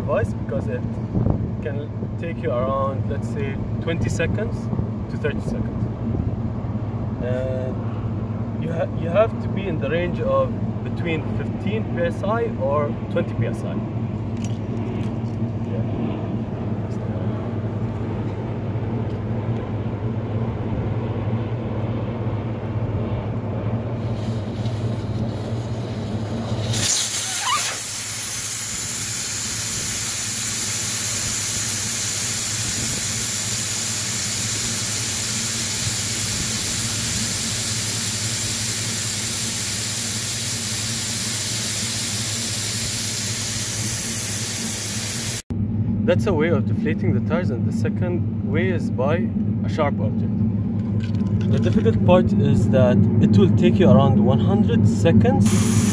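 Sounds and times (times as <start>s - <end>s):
air hissing from tyre valve: 24.0s - 45.4s, 55.4s - 55.9s.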